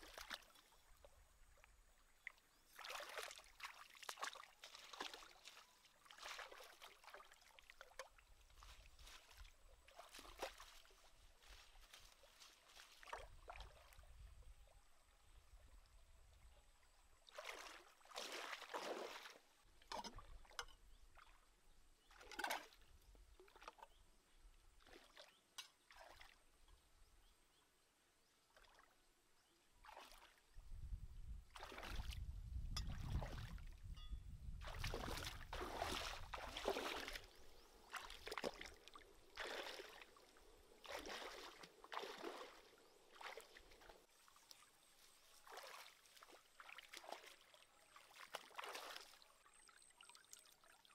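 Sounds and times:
feet splashing in stream: 0.0s - 0.8s, 2.6s - 14.1s, 17.3s - 20.6s, 24.8s - 26.4s, 29.8s - 30.4s, 31.5s - 33.7s, 34.6s - 49.5s.

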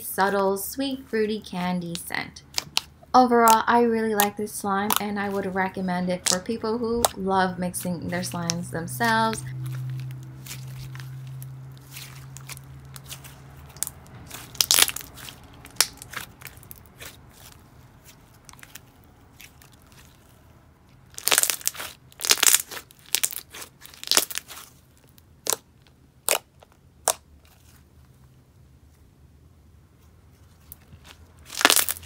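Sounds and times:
slime crackling and popping: 2.4s - 5.6s, 6.2s - 7.2s, 8.2s - 27.8s, 30.6s - 32.0s.

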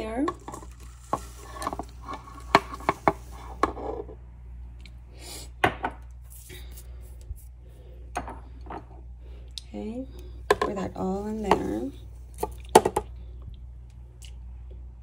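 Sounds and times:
sugar sliding out rustling: 0.3s - 3.8s.

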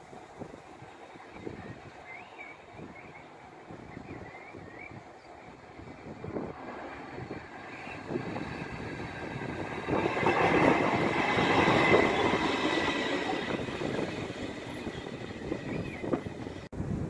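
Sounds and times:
diesel locomotive passing: 0.0s - 16.7s
high wheel squeal: 7.0s - 16.6s.

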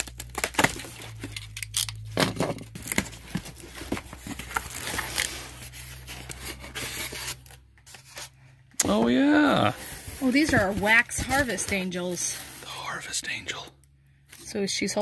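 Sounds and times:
cardboard scraping and tearing: 0.0s - 8.3s, 9.6s - 12.8s.

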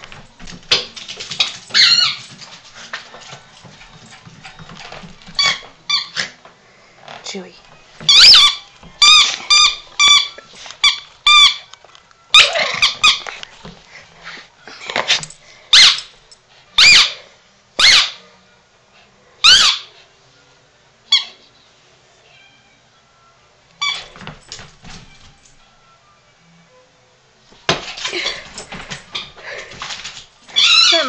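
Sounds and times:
squeaky dog toy: 1.4s - 2.3s, 5.4s - 6.4s, 8.0s - 11.7s, 12.3s - 13.3s, 15.7s - 16.1s, 16.8s - 17.2s, 17.8s - 18.2s, 19.4s - 19.9s, 21.1s - 21.4s, 23.8s - 24.2s, 30.5s - 31.0s.

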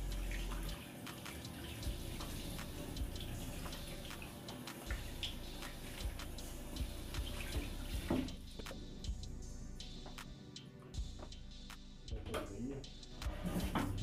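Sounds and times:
tap running into metal sink: 7.2s - 8.4s.

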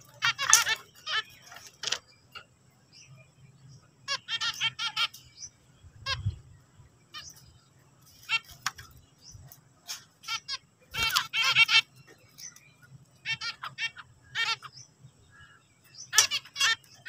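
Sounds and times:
finches singing rapid notes: 0.0s - 17.0s.

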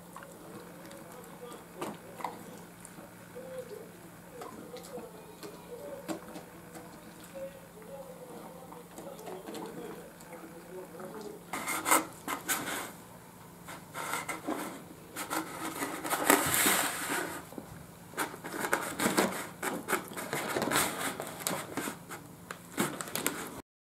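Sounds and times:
dog chewing and licking: 0.0s - 11.5s
food box scraping on wood: 13.6s - 17.5s, 18.2s - 22.2s.

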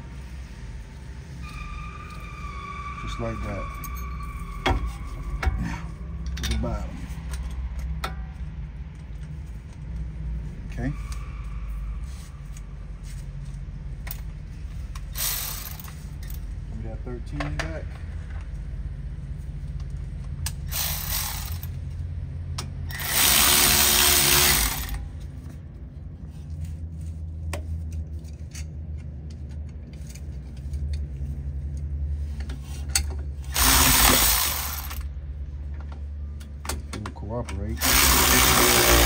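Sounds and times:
power tool running bolts: 15.1s - 16.4s, 20.7s - 21.8s, 22.9s - 25.1s, 33.4s - 35.1s, 37.8s - 39.0s.

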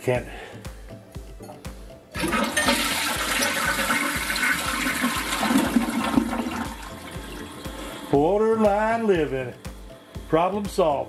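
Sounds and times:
toilet flushing: 2.2s - 8.2s.

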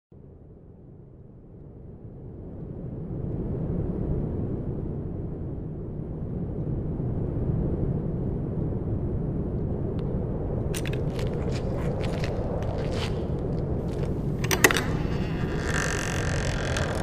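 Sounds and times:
key rattling in door lock: 10.8s - 11.2s, 13.9s - 17.0s.

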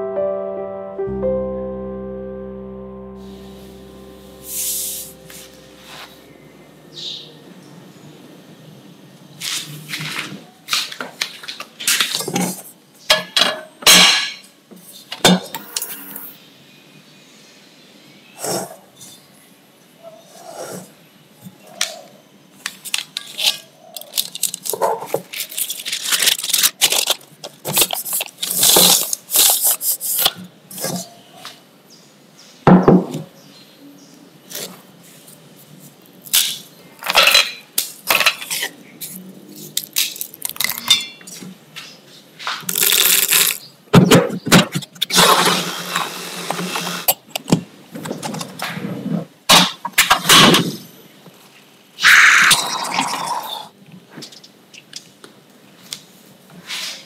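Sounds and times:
baking paper rustling: 24.1s - 30.2s.

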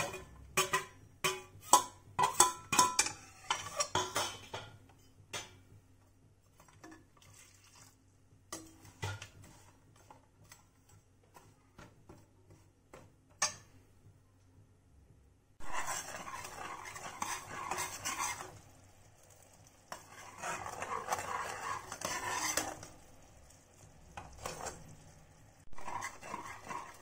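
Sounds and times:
spoon knocking in pot: 0.0s - 5.8s.

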